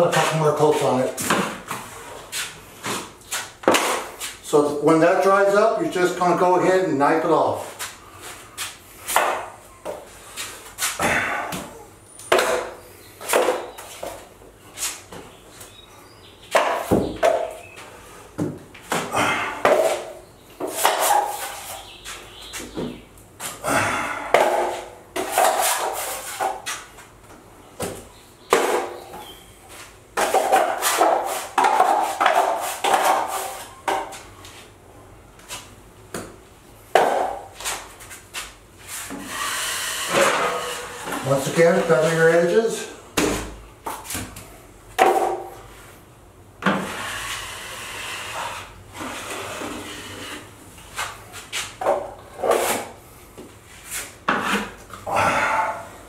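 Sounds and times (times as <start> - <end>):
drywall knife scraping compound: 19.4 - 21.8, 24.3 - 26.9, 30.2 - 33.8, 38.4 - 42.3, 46.7 - 53.0, 53.7 - 55.8.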